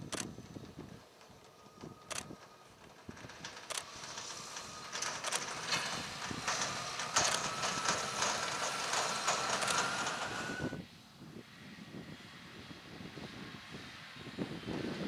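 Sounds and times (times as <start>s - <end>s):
trailer rattling on dirt track: 0.0s - 10.8s
tractor engine whine: 0.0s - 15.0s.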